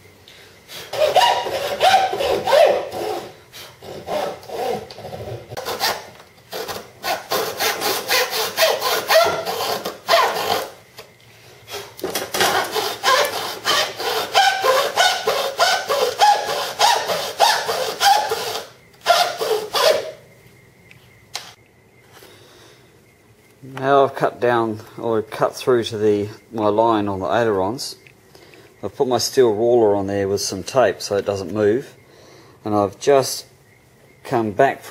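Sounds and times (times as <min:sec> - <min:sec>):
hacksaw rasping strokes: 0:00.8 - 0:05.0, 0:05.6 - 0:10.7, 0:11.7 - 0:20.1.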